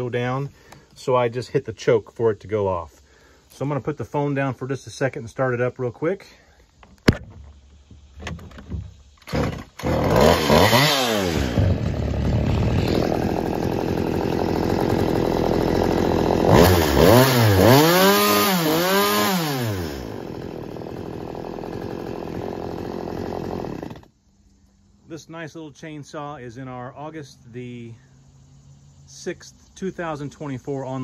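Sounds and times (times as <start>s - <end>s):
chainsaw revving and idling: 9.2s - 24.1s.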